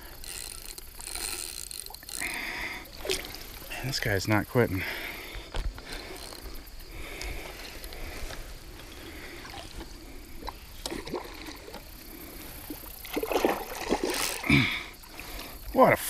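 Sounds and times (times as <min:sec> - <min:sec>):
fish splashing in water: 0:12.6 - 0:15.5.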